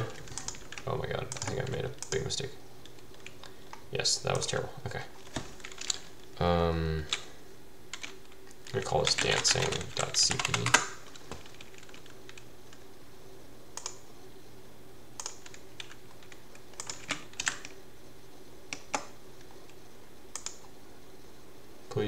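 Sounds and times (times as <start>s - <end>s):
keyboard keystrokes and clicks: 0.0s - 4.5s, 5.2s - 6.0s, 7.9s - 12.8s, 13.8s - 14.0s, 15.2s - 17.8s, 18.7s - 20.7s
faint steady hum: 0.0s - 22.0s.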